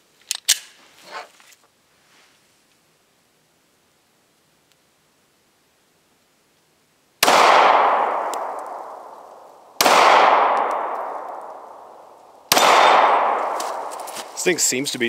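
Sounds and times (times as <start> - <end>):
pistol shots echoing: 7.2 - 14.4.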